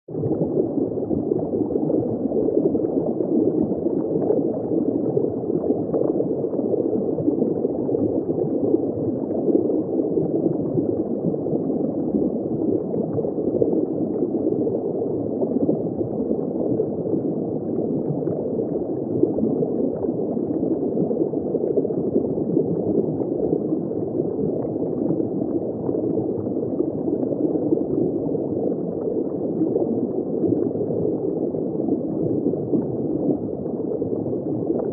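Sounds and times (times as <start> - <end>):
muffled underwater water rush: 0.1 - 34.9.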